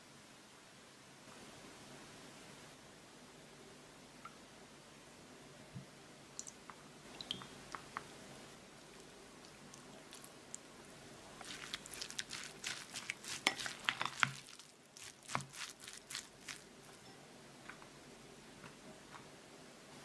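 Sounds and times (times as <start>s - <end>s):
rice paddle mixing rice in bowl: 11.4s - 17.1s.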